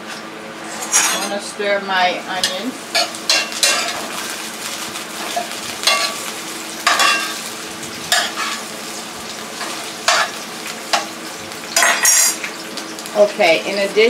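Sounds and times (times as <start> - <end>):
onions sizzling in a frying pan: 0.0 - 14.0
utensil scraping a pan: 0.1 - 1.5.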